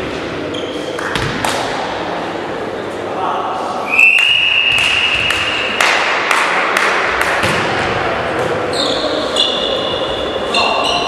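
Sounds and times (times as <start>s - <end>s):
volleyball thuds echoing: 4.6s - 8.7s.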